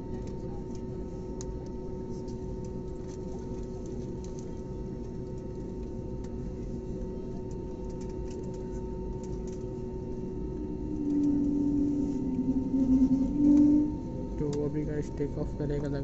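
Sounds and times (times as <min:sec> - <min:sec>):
airliner cabin hum: 0:00.0 - 0:16.0
low steady tone: 0:09.0 - 0:15.9.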